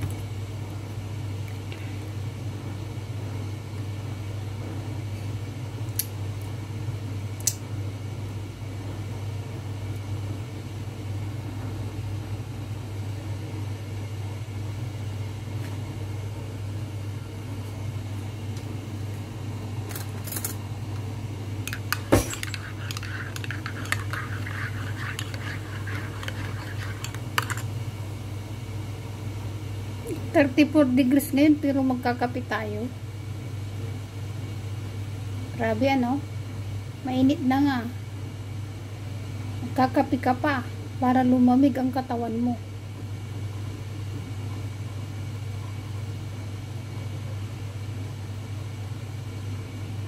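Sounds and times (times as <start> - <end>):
coffee machine humming: 0.0 - 50.0
spoon stirring in ceramic mug: 21.7 - 27.8.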